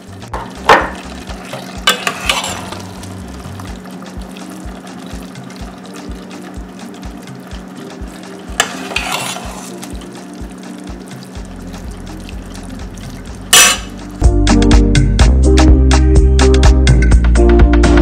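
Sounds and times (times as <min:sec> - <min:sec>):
metal spoon scraping a pot: 0:01.3 - 0:03.1, 0:08.5 - 0:10.0, 0:13.5 - 0:14.0
soft music with steady beat: 0:02.7 - 0:18.0.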